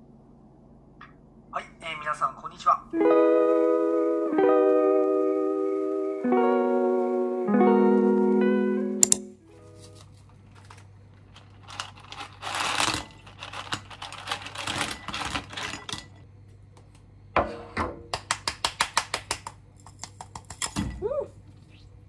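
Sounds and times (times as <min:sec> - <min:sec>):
plastic packaging crinkling: 0:09.6 - 0:16.0.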